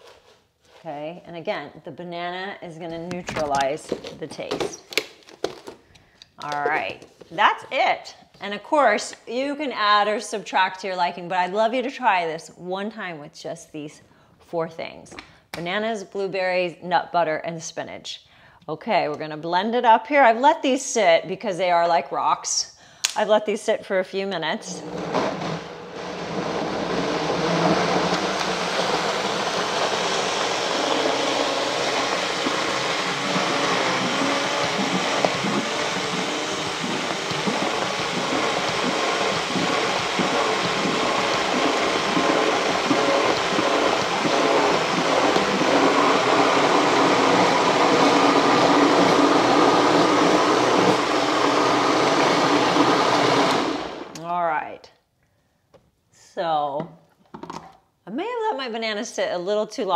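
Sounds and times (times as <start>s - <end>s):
blender running: 24.6s - 54.2s.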